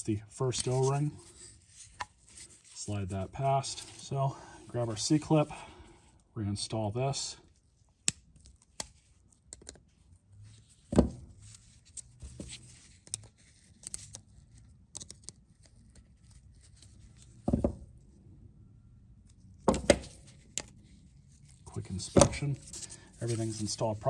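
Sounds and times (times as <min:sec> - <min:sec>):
soft rustling: 0:20.2 - 0:24.0.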